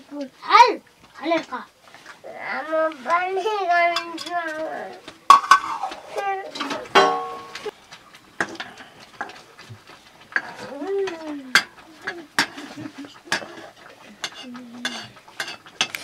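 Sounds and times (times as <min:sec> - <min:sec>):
ladle clinking against pot: 0:05.3 - 0:05.9, 0:06.6 - 0:07.7, 0:13.3 - 0:16.0
metal ladle scraping a pot: 0:05.3 - 0:07.6, 0:11.5 - 0:16.0.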